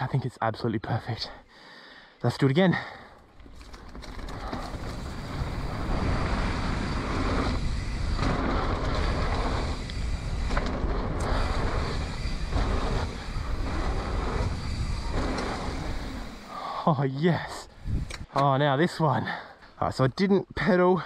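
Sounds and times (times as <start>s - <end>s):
bike tyres rumbling on dirt: 3.2s - 16.6s
wind rushing over microphone: 4.2s - 16.5s, 17.7s - 18.3s.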